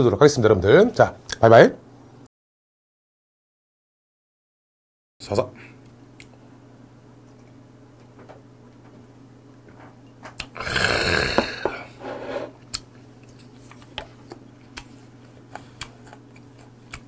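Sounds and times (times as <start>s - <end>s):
man exhaling throatily: 10.6s - 12.5s.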